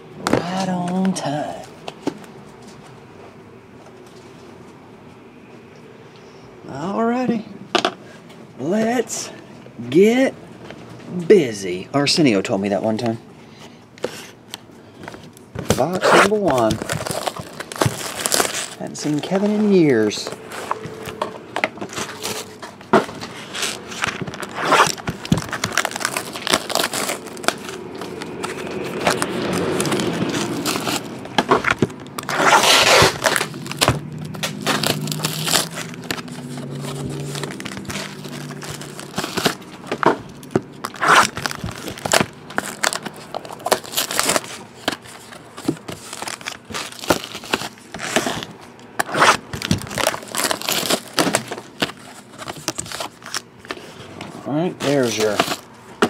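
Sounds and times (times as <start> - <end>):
foil wrappers crinkling: 15.0 - 21.2, 21.8 - 54.0, 54.7 - 56.0
cardboard packaging handled: 15.0 - 56.0.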